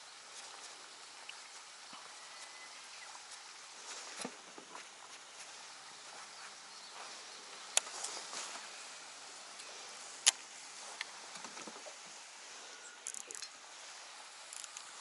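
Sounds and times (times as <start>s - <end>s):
outdoor hiss: 0.0s - 15.0s
fishing reel clicks and ticks: 13.0s - 13.5s, 14.5s - 14.9s.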